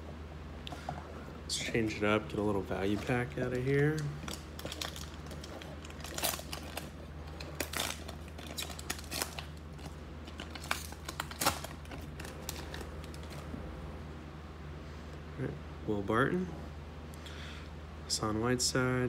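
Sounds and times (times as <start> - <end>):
plastic wrapper crinkling and tearing: 2.3 - 13.4.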